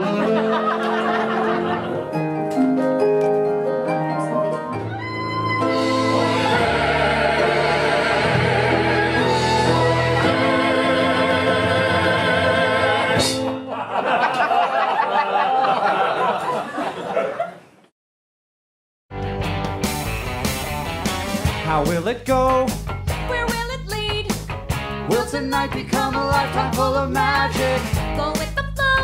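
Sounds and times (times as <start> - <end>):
people laughing: 0.0 - 2.2, 13.6 - 17.8
singers and band holding chords: 4.8 - 13.5.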